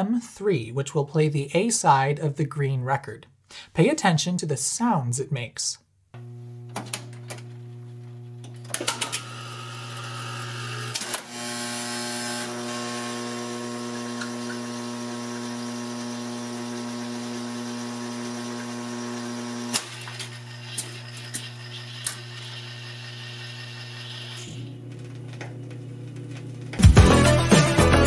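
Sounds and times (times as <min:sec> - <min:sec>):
electrical hum: 0:06.2 - 0:26.8
mechanism clicks and clunks: 0:06.7 - 0:07.5, 0:08.4 - 0:09.3
jukebox carousel motor running: 0:08.4 - 0:24.9.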